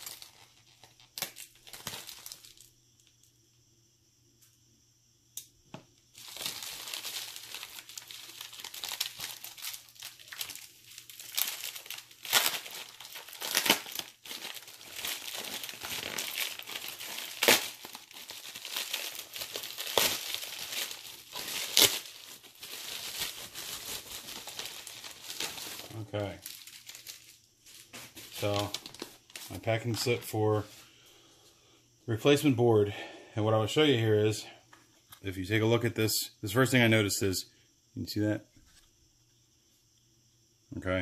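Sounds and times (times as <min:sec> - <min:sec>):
sharp packaging cracks: 0:00.0 - 0:02.7, 0:06.2 - 0:27.4
packaging crinkling and rustling: 0:00.0 - 0:03.1, 0:06.2 - 0:30.3.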